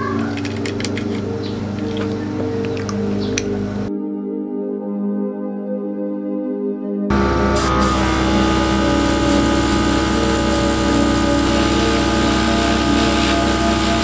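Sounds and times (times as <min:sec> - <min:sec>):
air compressor running: 0:07.1 - 0:14.0
airbrush spraying hiss: 0:07.5 - 0:14.0.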